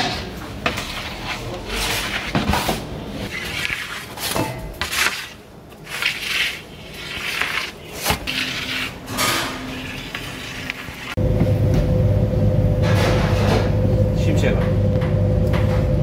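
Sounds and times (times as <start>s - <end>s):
wooden peel scraping on stone: 3.3s - 11.2s.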